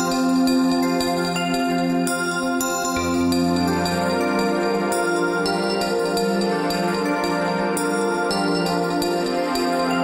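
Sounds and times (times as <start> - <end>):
instrumental background music: 0.0 - 10.0.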